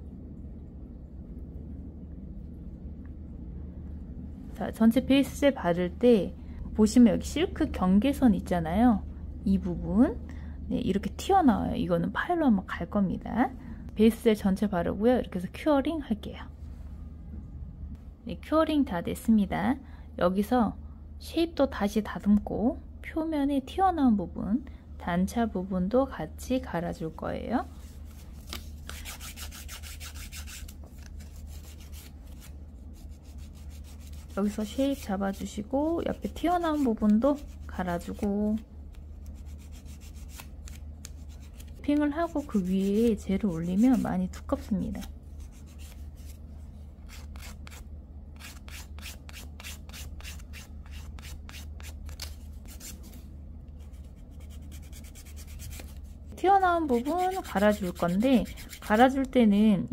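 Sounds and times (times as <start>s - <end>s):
nail file rasping on fingernail: 28.9s - 30.7s, 39.2s - 41.7s, 47.1s - 47.8s, 57.0s - 59.0s.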